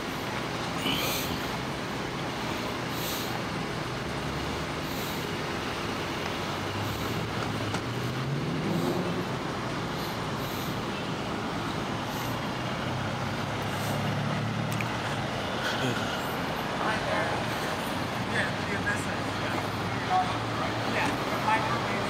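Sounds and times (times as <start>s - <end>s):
traffic noise: 0.0s - 22.0s
engine revving: 6.6s - 10.8s.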